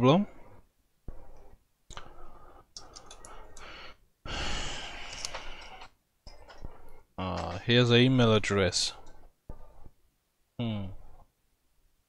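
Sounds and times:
breath into headset microphone: 2.0s - 5.9s.

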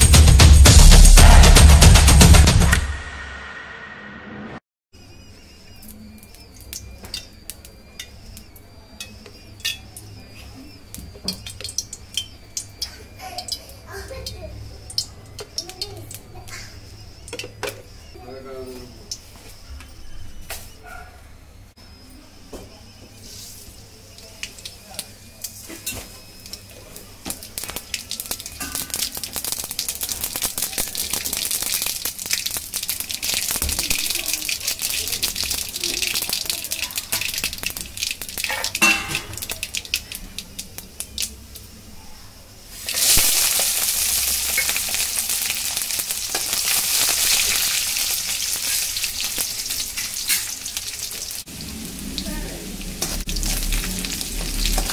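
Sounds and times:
faint high chirping: 5.0s - 31.9s, 33.1s - 42.6s
seeds popping in hot oil: 5.7s - 18.1s, 24.1s - 41.7s, 42.7s - 54.9s
oil sizzling: 5.8s - 17.9s, 23.2s - 41.9s, 42.6s - 54.9s
heating pan clicking and ticking: 11.3s - 16.6s, 27.3s - 41.7s.

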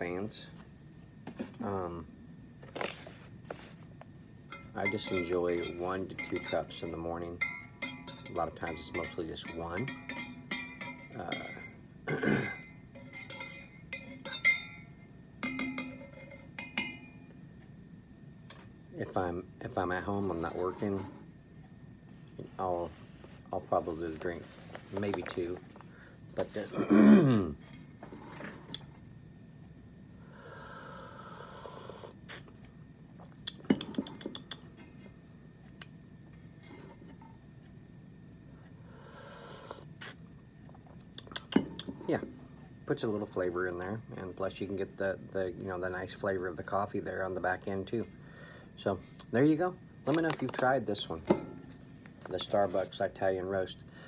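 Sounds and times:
stirrer clinking in coffee mug: 4.5s - 11.7s
lip smacks and mouth clicks: 33.3s - 34.7s, 41.1s - 41.9s.

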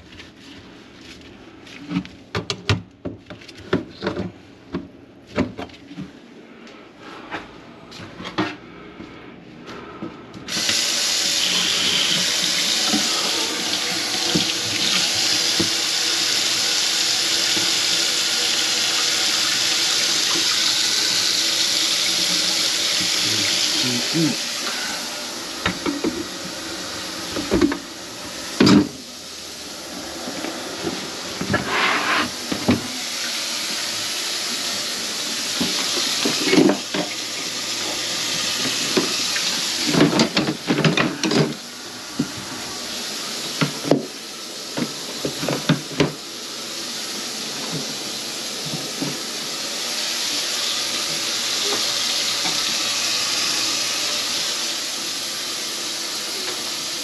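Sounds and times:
faucet water running into sink: 10.5s - 30.4s, 32.4s - 41.6s, 42.2s - 57.0s.

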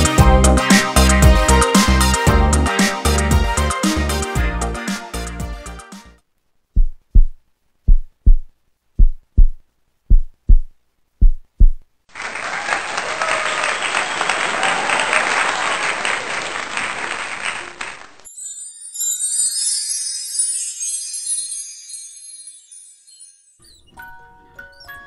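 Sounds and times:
heartbeat thumps: 6.8s - 11.9s
crowd cheering and applause: 12.1s - 18.3s.

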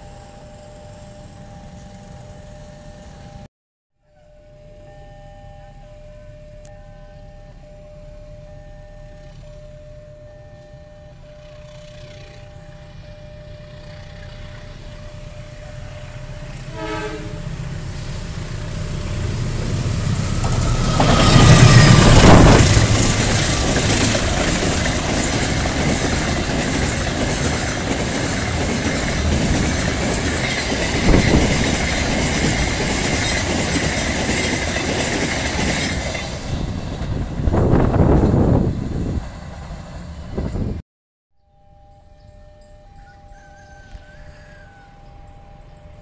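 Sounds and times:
diesel locomotive passing: 0.0s - 3.5s, 4.4s - 40.8s
steady high whine: 0.0s - 3.5s, 4.2s - 32.8s
wheels rumbling on rails: 4.4s - 40.8s.

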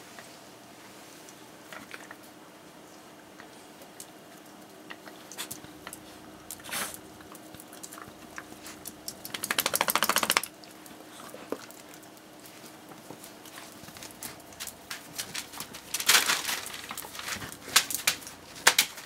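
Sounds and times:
fast even rattle: 9.2s - 10.5s
dogs rustling on bedding: 10.8s - 19.0s.

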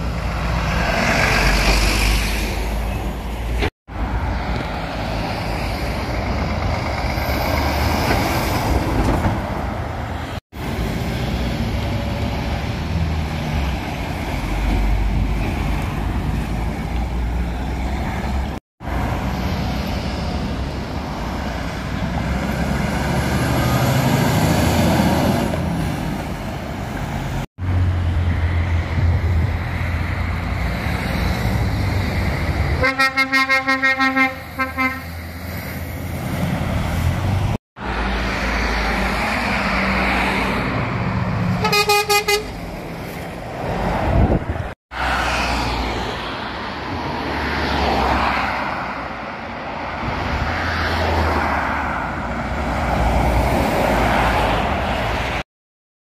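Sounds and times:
lorries driving past: 0.0s - 55.4s
higher-pitched horn toot: 32.8s - 35.1s, 41.6s - 42.6s
lorry horn tooting: 32.8s - 35.1s, 41.6s - 42.6s.

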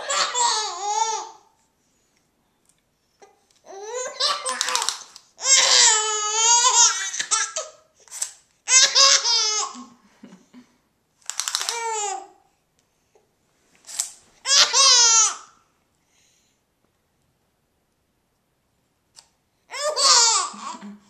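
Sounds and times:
baby laughing: 0.0s - 1.5s, 3.7s - 7.9s, 8.7s - 10.0s, 14.4s - 15.5s, 19.7s - 20.9s.

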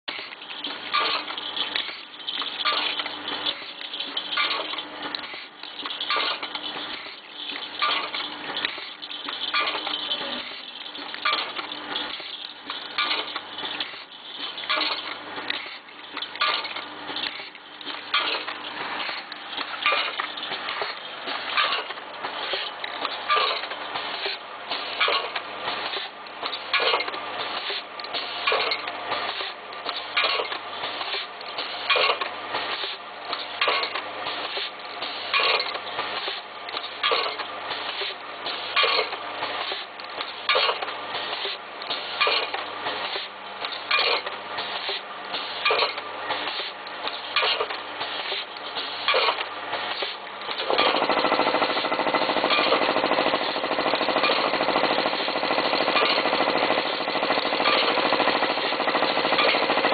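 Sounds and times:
packing machine clattering: 49.1s - 59.9s.

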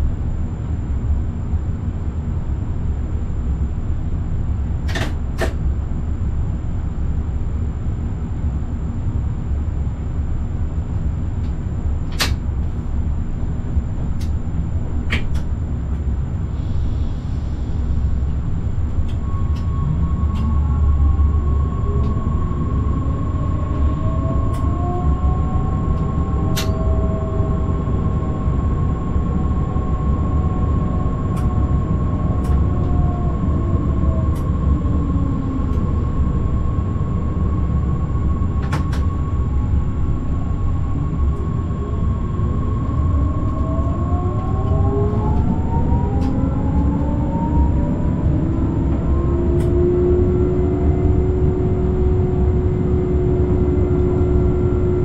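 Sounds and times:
electric train rumbling: 0.0s - 55.0s
high whine: 0.0s - 55.0s
rising electric drive tones: 19.0s - 55.0s.

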